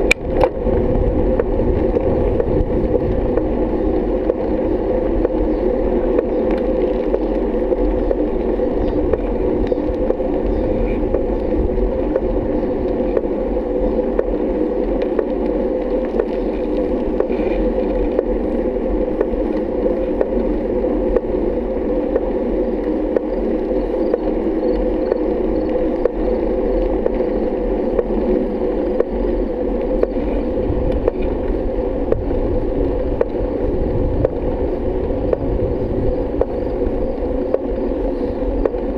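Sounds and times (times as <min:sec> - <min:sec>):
bicycle rolling on asphalt: 0:00.0 - 0:38.9
road vibration: 0:00.0 - 0:38.9
wind: 0:00.0 - 0:38.9.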